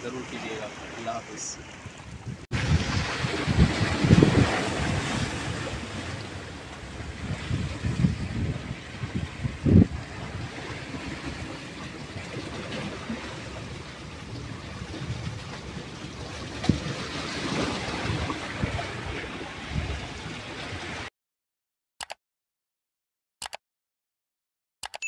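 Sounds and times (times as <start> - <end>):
wind on microphone: 1.6 - 21.1
surf washing on rocky shore: 2.5 - 21.1.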